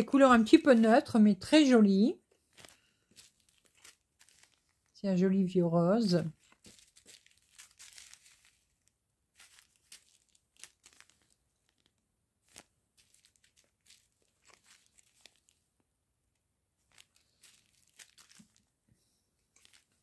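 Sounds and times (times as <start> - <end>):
plastic bags crinkling: 2.0 - 5.0, 6.0 - 15.7, 16.8 - 18.8, 19.5 - 20.0.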